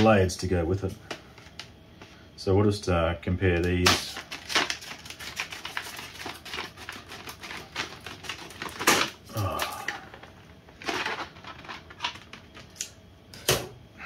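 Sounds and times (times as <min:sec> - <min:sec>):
package clicks and rustling: 0:01.0 - 0:01.7, 0:03.6 - 0:13.0.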